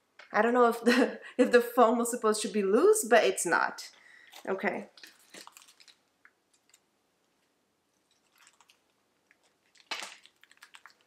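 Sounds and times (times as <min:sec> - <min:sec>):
foam crackle: 0:05.0 - 0:06.8.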